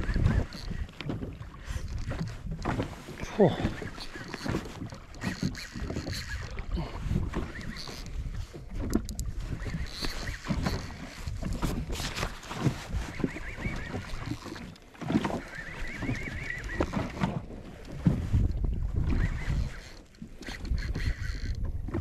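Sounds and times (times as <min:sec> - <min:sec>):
wind buffeting microphone: 0:00.0 - 0:04.6, 0:15.8 - 0:19.9
water slapping against hull: 0:00.0 - 0:22.0
spinning reel winding: 0:05.2 - 0:06.5, 0:07.5 - 0:08.1, 0:19.2 - 0:21.6.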